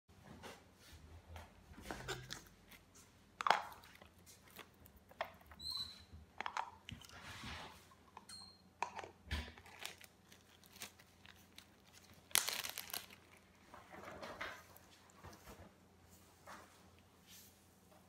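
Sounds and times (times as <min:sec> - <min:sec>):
plastic funnel and bottle clicking: 0:06.3 - 0:07.1, 0:08.1 - 0:10.0
plastic bags crinkling: 0:08.9 - 0:14.1.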